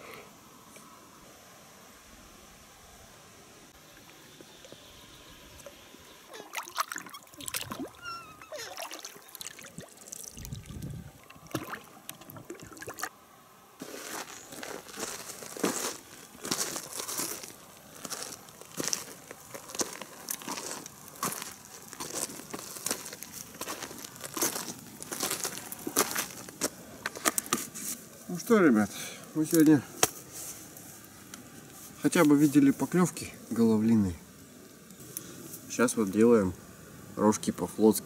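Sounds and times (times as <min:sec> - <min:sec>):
water sloshing and trickling: 0:06.3 - 0:13.2.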